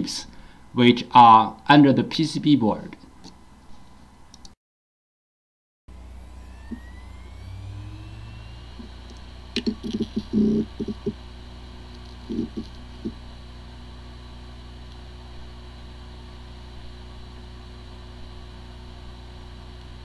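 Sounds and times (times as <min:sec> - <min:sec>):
hard disk drive hum: 0:05.9 - 0:20.0.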